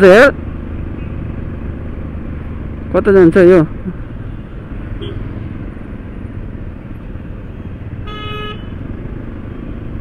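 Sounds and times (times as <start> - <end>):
road traffic rumble: 0.0 - 10.0
vehicle horn toot: 5.0 - 5.2, 8.0 - 8.8.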